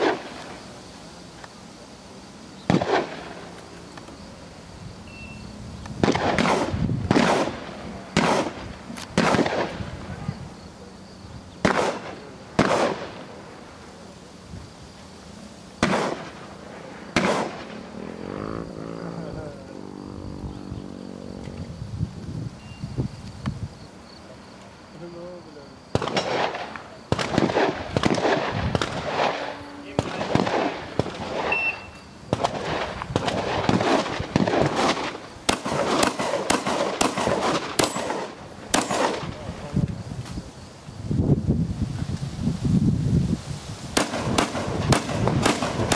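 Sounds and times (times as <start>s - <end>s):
shotgun shots: 0.0s - 0.5s, 2.7s - 3.4s, 6.0s - 9.9s, 11.6s - 13.4s, 15.8s - 16.5s, 17.1s - 17.9s, 25.9s - 39.5s, 44.0s - 45.9s.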